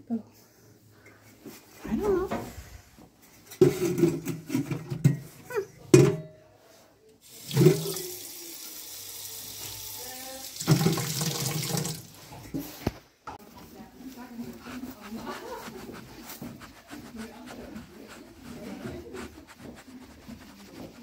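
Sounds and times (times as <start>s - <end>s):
water tap running: 7.2s - 12.3s.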